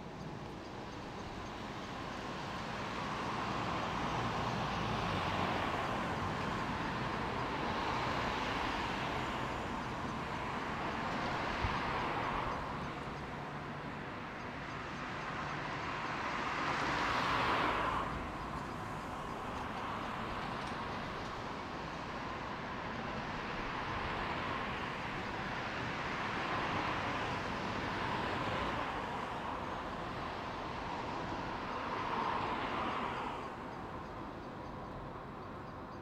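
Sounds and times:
train wheels rolling on rails: 18.4s - 23.2s.

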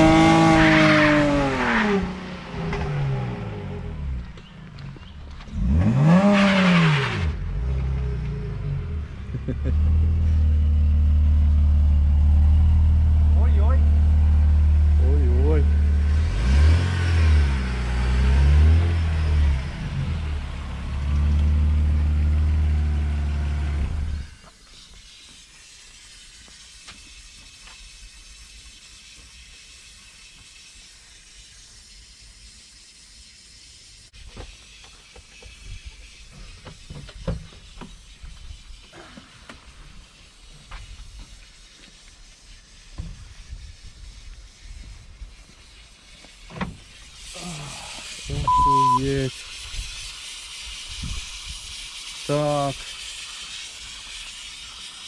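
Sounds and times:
steam hissing: 0.0s - 7.7s, 9.2s - 55.0s
car engine revving: 0.0s - 24.3s.

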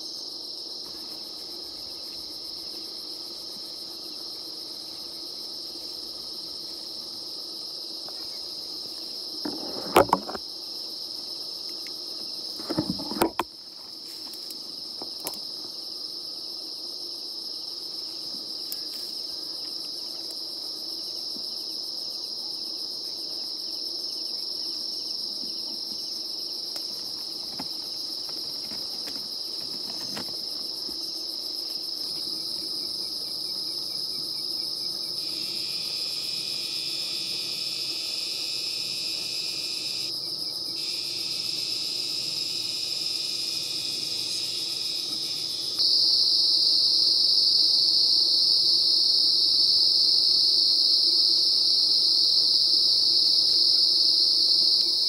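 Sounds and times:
crickets trilling: 0.0s - 55.0s
close rustling and knocking: 12.6s - 13.5s.

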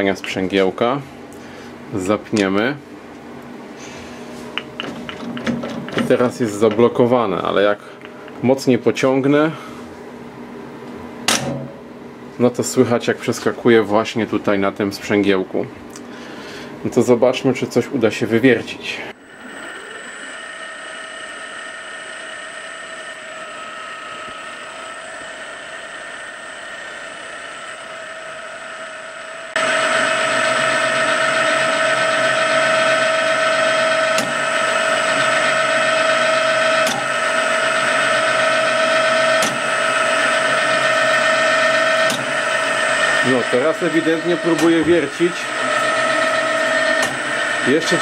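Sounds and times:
milling machine spindle whine: 19.1s - 48.0s.

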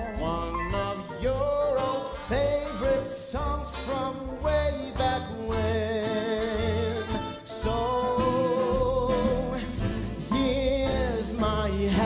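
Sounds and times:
small live band: 0.0s - 12.0s
singers in duet with vibrato: 4.2s - 12.0s.

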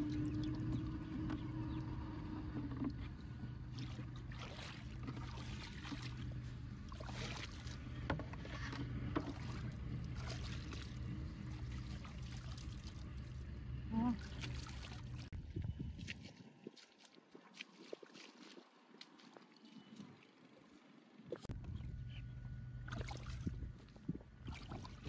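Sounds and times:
steady low hum: 0.0s - 16.1s, 21.0s - 25.0s
water splashing from wading: 2.6s - 20.3s, 22.8s - 25.0s.

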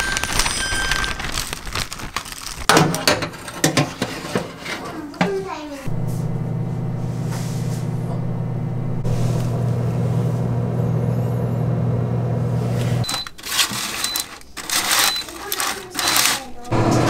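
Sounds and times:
air fryer humming: 5.8s - 17.0s
metal utensil handling food: 13.0s - 16.7s.

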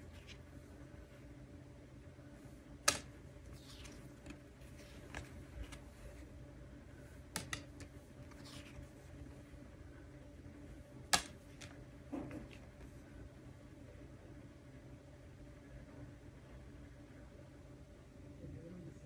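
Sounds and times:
faint steady hum: 0.0s - 19.0s
cards tapping on wooden table: 2.9s - 3.1s, 7.4s - 8.6s, 11.1s - 12.6s
card sliding swishes: 2.9s - 6.3s.

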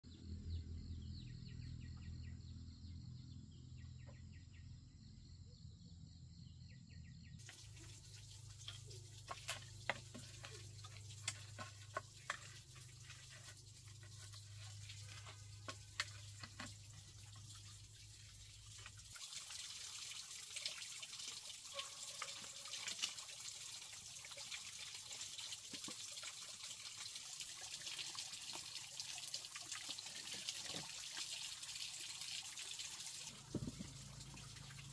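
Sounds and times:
water pouring into plastic basin: 7.4s - 34.9s.

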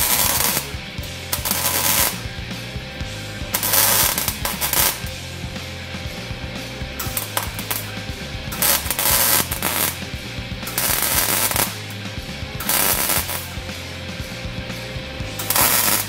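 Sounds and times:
arc welding crackle: 0.0s - 2.4s, 3.4s - 5.2s, 6.9s - 13.7s, 15.4s - 16.0s
steady low hum: 0.0s - 16.0s.

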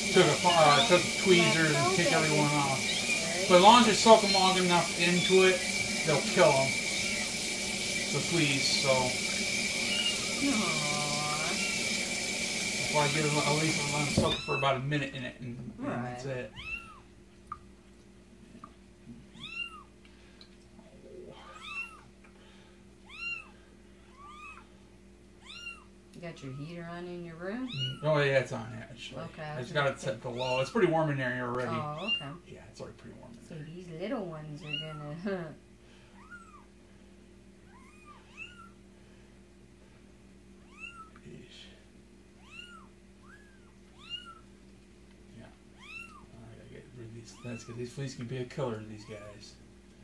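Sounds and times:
faint low hum: 12.9s - 50.0s
kitten mewing: 14.2s - 14.7s, 19.3s - 19.9s, 21.2s - 22.1s, 23.0s - 24.7s, 25.4s - 26.7s, 27.7s - 28.1s, 31.7s - 32.4s, 34.6s - 35.2s, 37.7s - 38.8s, 40.6s - 41.2s, 42.4s - 44.5s, 45.8s - 46.3s.

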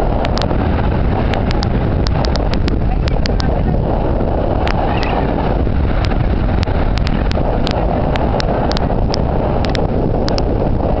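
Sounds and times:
wind rumbling on microphone: 0.0s - 11.0s
sharp clicks: 1.3s - 3.5s, 6.0s - 10.5s.

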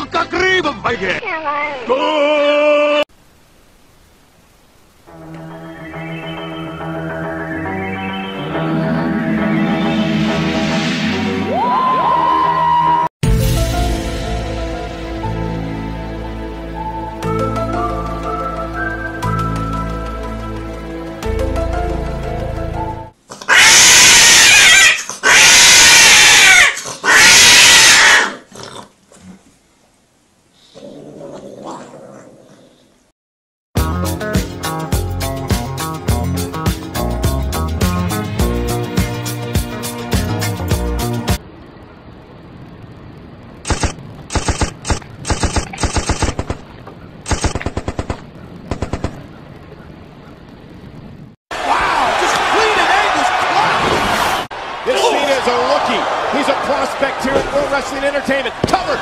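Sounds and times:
cat yowling: 23.4s - 28.5s
machine-gun fire bursts: 43.7s - 46.6s, 47.3s - 49.2s.

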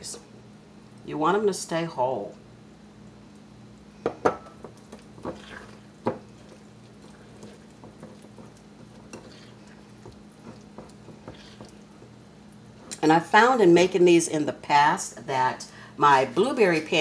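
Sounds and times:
whisk stirring batter: 4.8s - 12.9s.

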